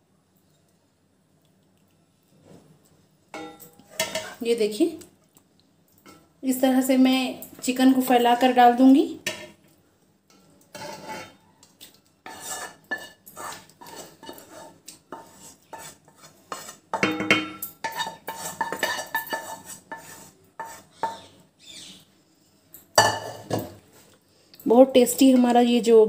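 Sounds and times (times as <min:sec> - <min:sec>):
metal spoon scraping a pot: 0:03.3 - 0:04.5, 0:10.3 - 0:11.5, 0:12.2 - 0:21.4.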